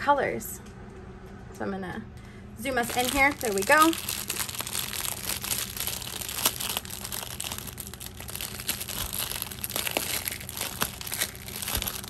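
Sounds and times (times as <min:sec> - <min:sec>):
plastic packaging crinkling: 0:02.7 - 0:12.0.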